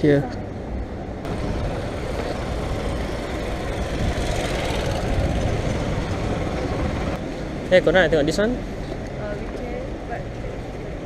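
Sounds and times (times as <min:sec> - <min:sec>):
street noise: 0:00.0 - 0:11.0.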